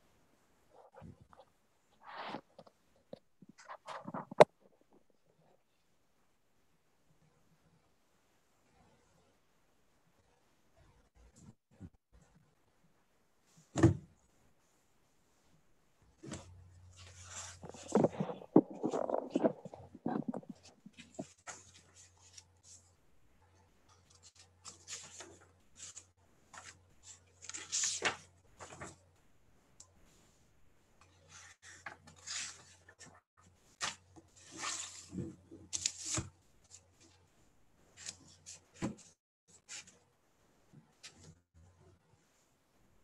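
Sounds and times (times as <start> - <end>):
rustling and scraping handling noise: 0.7 - 5.7, 15.3 - 23.0, 23.9 - 29.1, 31.0 - 40.0.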